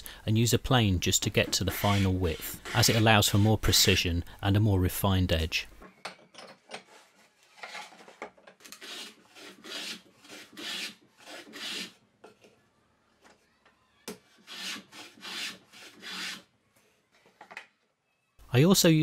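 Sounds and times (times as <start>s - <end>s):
hand plane shaving wood: 1.3s - 3.9s, 8.6s - 12.0s, 14.3s - 16.5s.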